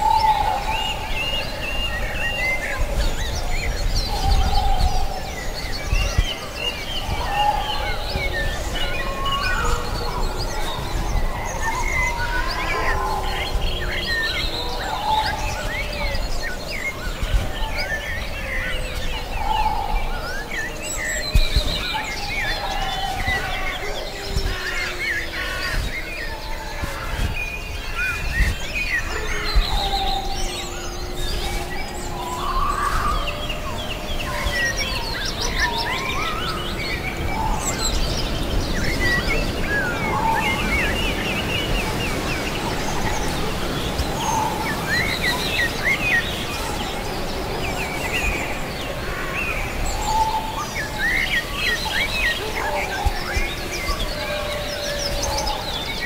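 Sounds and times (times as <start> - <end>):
forest background: 0.0 - 56.0
small birds chirping: 0.0 - 56.0
wolf howls: 7.1 - 37.8.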